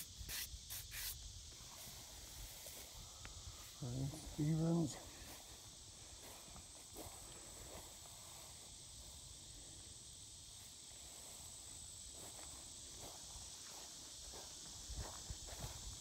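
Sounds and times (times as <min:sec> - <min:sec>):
high-pitched insect chorus: 0:00.0 - 0:16.0
footsteps on grass: 0:01.0 - 0:08.8, 0:11.3 - 0:16.0.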